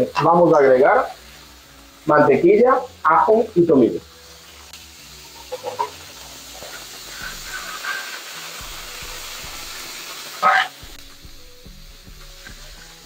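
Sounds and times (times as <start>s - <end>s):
steaks sizzling in a frying pan: 0.0s - 13.0s.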